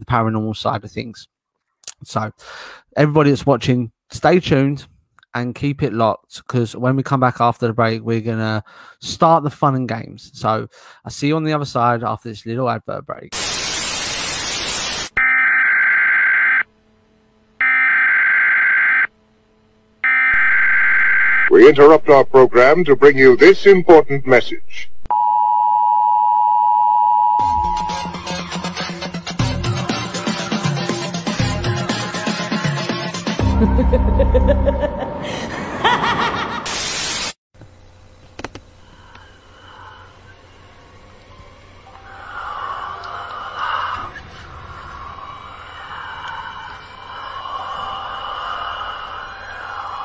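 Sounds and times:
tv static burst: 0:13.3 - 0:16.6, 0:36.6 - 0:37.4
shrill electronic alert beep: 0:15.2 - 0:16.7, 0:17.6 - 0:19.1, 0:20.0 - 0:21.5
low rumble: 0:33.4 - 0:36.0, 0:42.0 - 0:49.7
laughing sound effect: 0:33.4 - 0:37.0.

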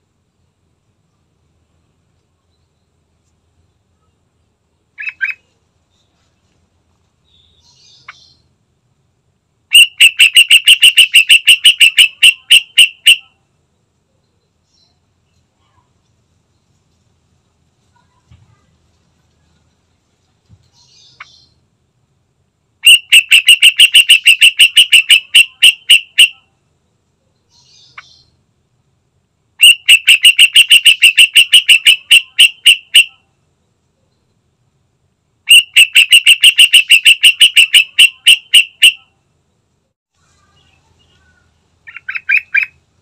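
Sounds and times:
bulbul chattering calls: 0:05.0 - 0:05.5, 0:09.7 - 0:13.3, 0:22.8 - 0:26.4, 0:29.6 - 0:33.2, 0:40.6 - 0:42.8.

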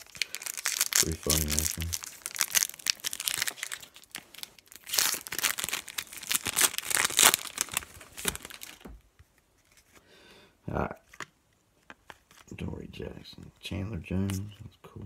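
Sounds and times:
foil wrapper crinkling: 0:00.0 - 0:09.0.

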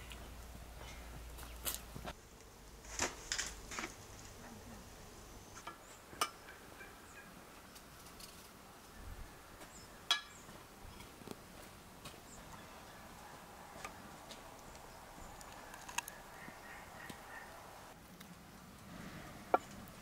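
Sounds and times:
faint fowl calls: 0:15.5 - 0:18.0.

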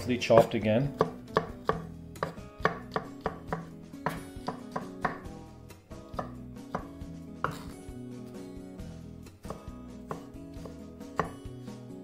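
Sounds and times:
knife chopping on wooden board: 0:00.3 - 0:05.4, 0:06.1 - 0:07.8, 0:09.4 - 0:11.6.

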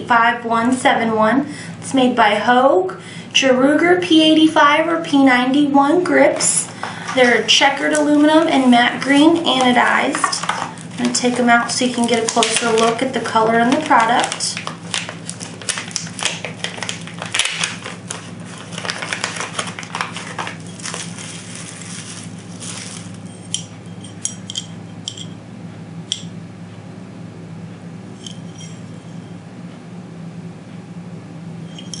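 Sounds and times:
plastic wrapping crinkling: 0:06.6 - 0:23.6.

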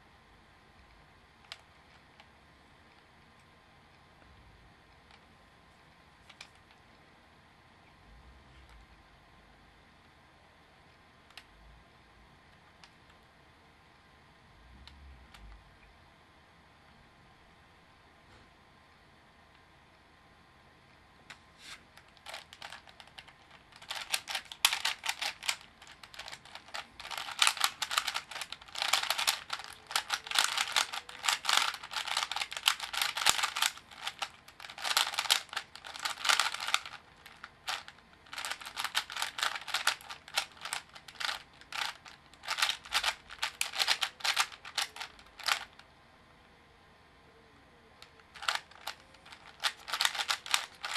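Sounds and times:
puzzle cube clacking: 0:22.0 - 0:45.8, 0:48.0 - 0:50.9.

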